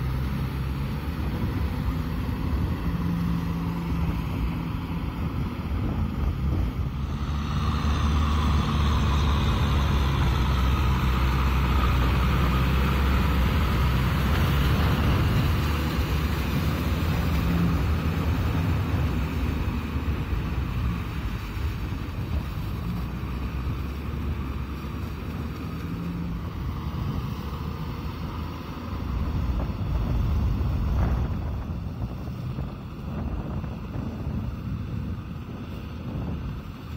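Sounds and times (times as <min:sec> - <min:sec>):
tiller churning mud and water: 0:00.0 - 0:36.9
tractor diesel engine running: 0:00.0 - 0:36.9.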